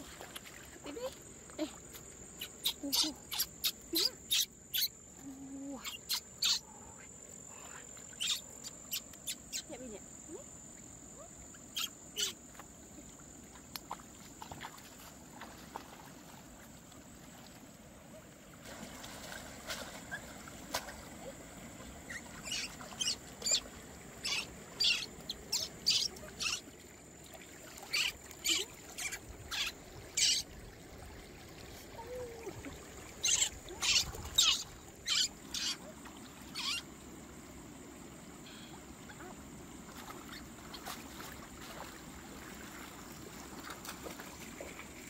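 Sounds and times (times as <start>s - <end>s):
crickets droning: 0.0s - 45.0s.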